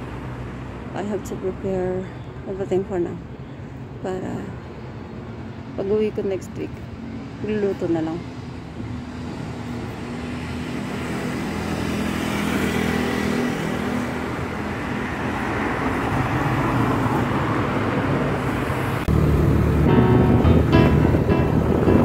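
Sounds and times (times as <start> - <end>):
vehicle engines running: 5.8 - 22.0.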